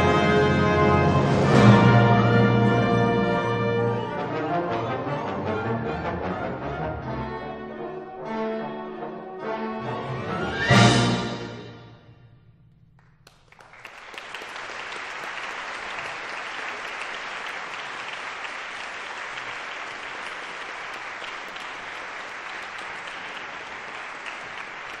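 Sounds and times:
audience applause: 0:13.0 - 0:25.0.

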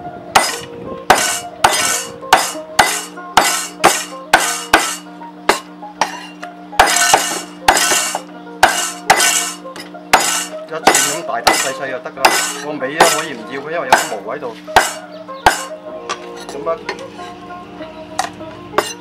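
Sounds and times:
background music: 0:00.0 - 0:19.0
cleaver chopping on wooden block: 0:00.4 - 0:06.2, 0:06.8 - 0:15.8.

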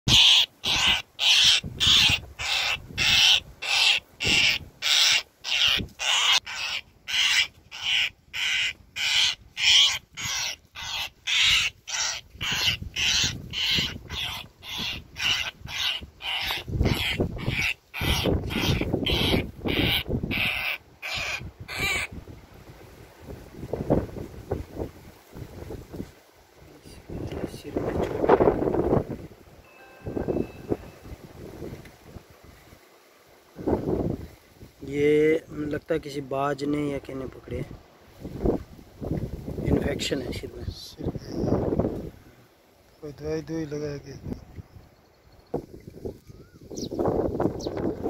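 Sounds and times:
bird giving harsh rasping calls: 0:00.1 - 0:22.1.

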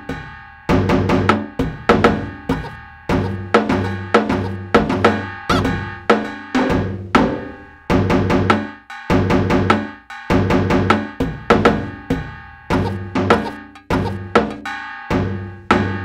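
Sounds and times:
upbeat cartoon music: 0:01.1 - 0:08.2, 0:10.4 - 0:15.2.

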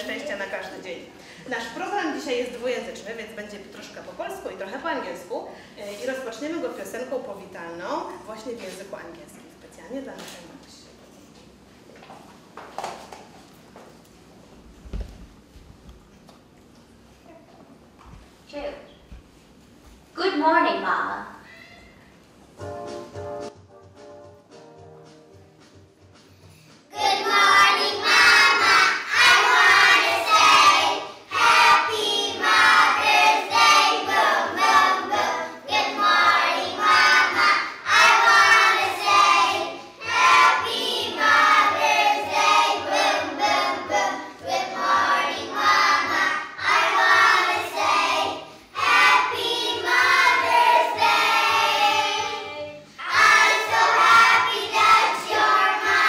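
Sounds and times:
young children singing: 0:26.9 - 0:56.0.

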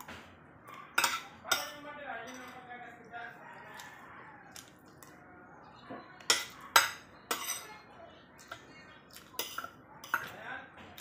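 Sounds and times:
cutlery clinking on ceramic bowls: 0:00.9 - 0:02.7, 0:05.9 - 0:07.8, 0:08.4 - 0:10.4.

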